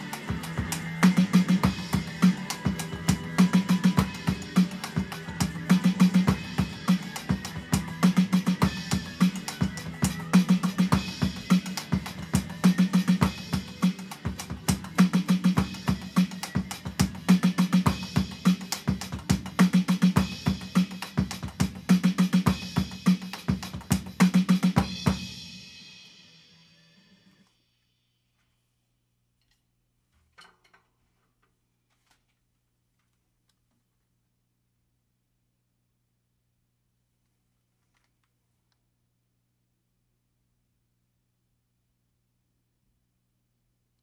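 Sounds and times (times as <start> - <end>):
backing track with guitar: 0.0 - 21.5
electronic drum kit rock groove: 0.0 - 26.5.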